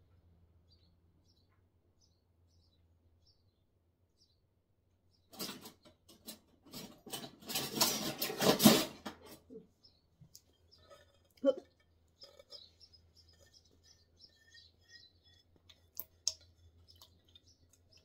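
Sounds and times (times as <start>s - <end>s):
kitchen clatter and scraping: 5.3s - 9.7s, 10.4s - 18.0s
bird chirps: 9.8s - 18.0s.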